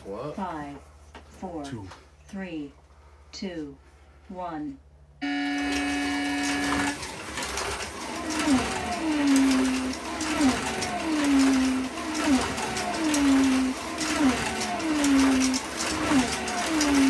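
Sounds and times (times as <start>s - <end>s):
slot car motor whining: 5.2s - 17.0s.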